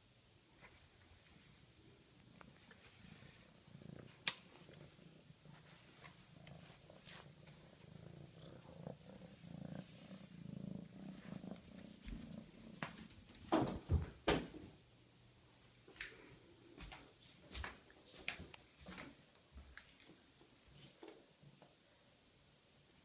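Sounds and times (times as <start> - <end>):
kitten purring: 1.2 - 13.5.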